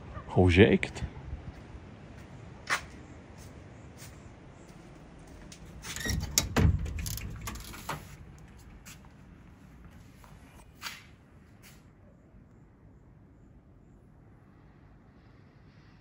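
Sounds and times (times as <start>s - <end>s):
door handle clicks and rattles: 5.9s - 8.1s
heavy door thud: 6.0s - 8.2s.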